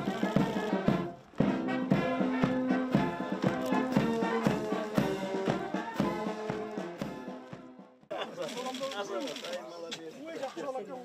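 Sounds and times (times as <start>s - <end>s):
brass band playing a march: 0.0s - 8.0s.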